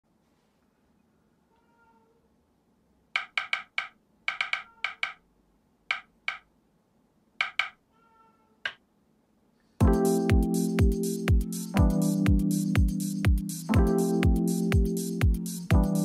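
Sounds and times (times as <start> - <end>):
sharp wooden clicks: 3.2 - 5.2, 5.9 - 6.5, 7.4 - 7.8.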